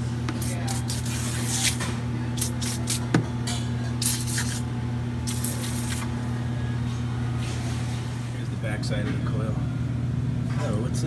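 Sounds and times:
steady low hum: 0:00.0 - 0:11.0
spray can hissing: 0:05.3 - 0:06.0.

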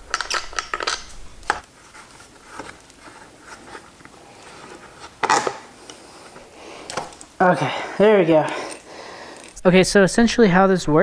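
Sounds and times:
plastic parts clattering: 0:00.0 - 0:01.6, 0:04.4 - 0:05.7.

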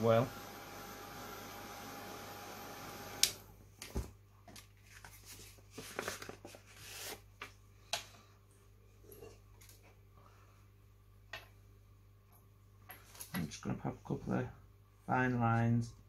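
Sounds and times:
heat gun blowing: 0:00.0 - 0:03.4
card stock rustling and tapping: 0:03.8 - 0:08.1.

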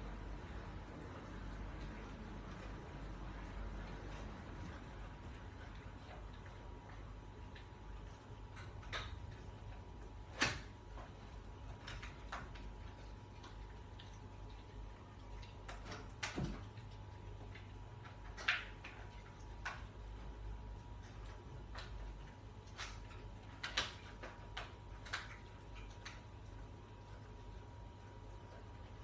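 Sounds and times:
steady low hum: 0:00.0 - 0:29.0
dog gnawing on toy: 0:01.3 - 0:29.0.

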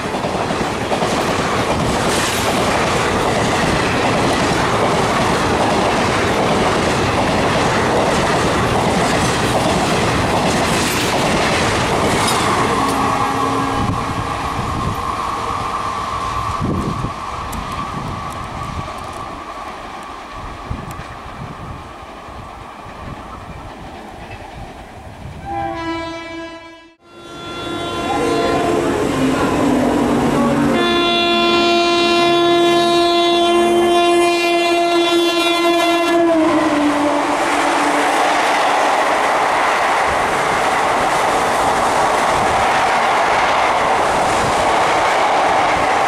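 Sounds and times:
train rushing and wheel clatter: 0:00.0 - 0:26.4, 0:27.2 - 0:46.0
locomotive multi-note horn: 0:12.6 - 0:14.1, 0:25.4 - 0:38.3.

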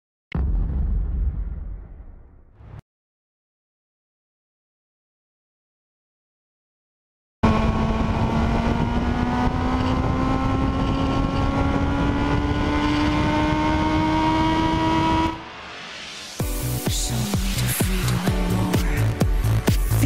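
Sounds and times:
motorcycle engine accelerating: 0:07.4 - 0:15.6
road and wind noise: 0:07.4 - 0:16.4
electronic dance music: 0:16.2 - 0:20.0.

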